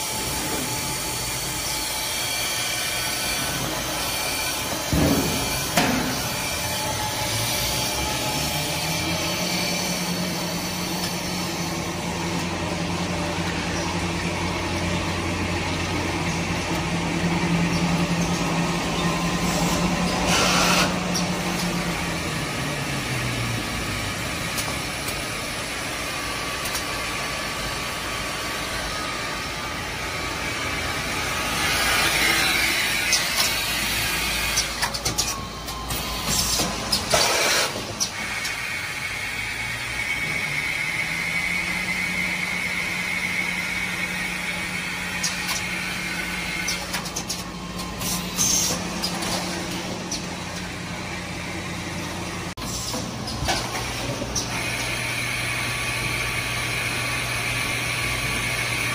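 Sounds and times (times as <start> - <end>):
factory machinery din: 0.0 - 58.9
machine hissing: 0.0 - 58.9.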